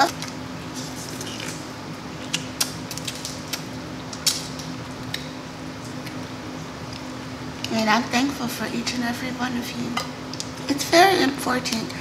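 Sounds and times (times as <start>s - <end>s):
crab legs cracking: 0.0s - 5.3s.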